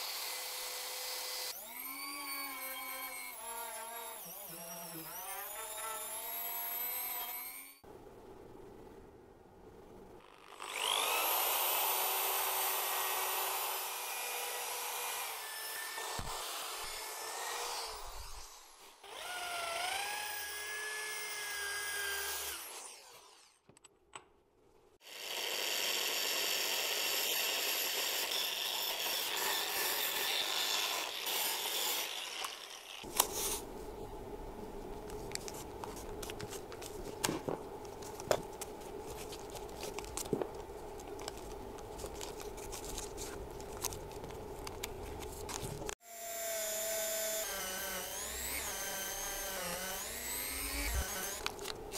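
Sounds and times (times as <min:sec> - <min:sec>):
power drill whining: 0:00.0 - 0:07.8, 0:10.4 - 0:23.6, 0:46.0 - 0:51.6
handling rustling: 0:34.7 - 0:46.0.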